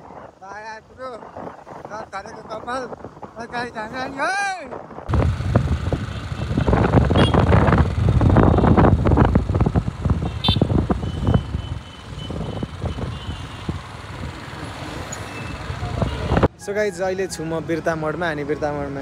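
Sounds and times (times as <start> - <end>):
wind buffeting microphone: 0.0 - 16.5
road noise: 0.0 - 19.0
motorcycle engine: 5.1 - 14.9.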